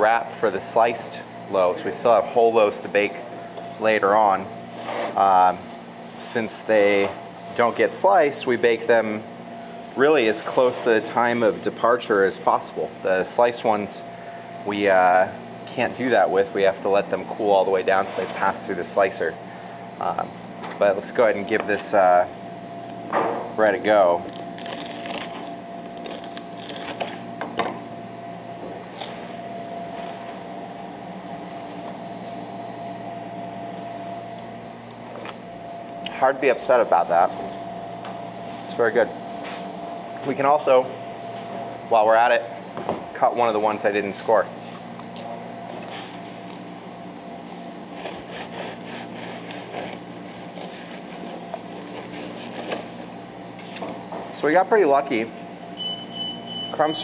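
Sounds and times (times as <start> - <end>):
bakery machinery hum: 0.0 - 57.0
bread knife crackling through crust: 47.8 - 52.9.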